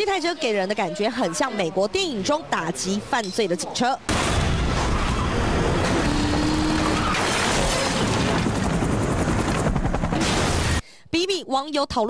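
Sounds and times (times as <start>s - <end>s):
racing car engines and tyres: 4.1s - 8.8s.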